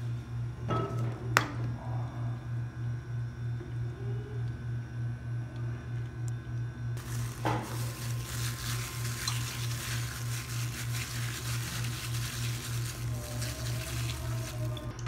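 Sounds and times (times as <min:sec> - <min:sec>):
wet squelching of minced meat: 0:07.0 - 0:15.0.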